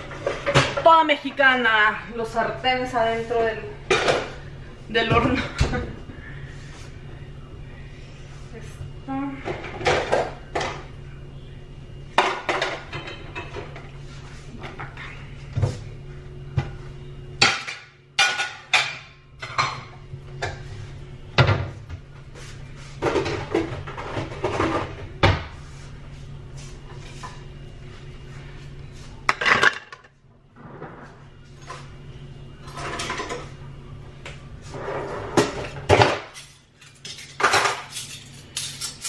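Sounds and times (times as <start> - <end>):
steady low hum: 0.0 - 39.0
dishes and cutlery clattering: 12.2 - 13.8, 35.9 - 39.0.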